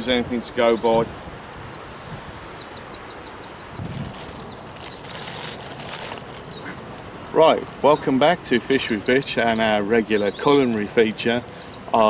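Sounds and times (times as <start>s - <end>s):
rustling hiss: 1.1s - 9.8s
small bird calling: 2.6s - 12.0s.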